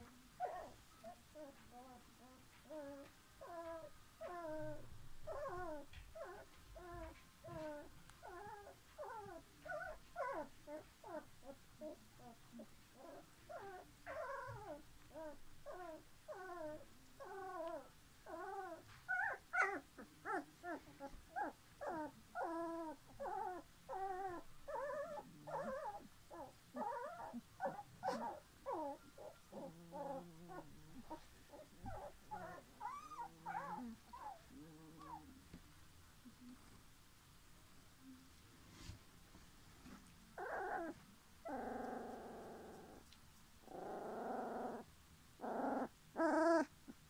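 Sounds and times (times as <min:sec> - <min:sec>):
puppies whimpering: 0:13.0 - 0:35.3, 0:45.4 - 0:46.7.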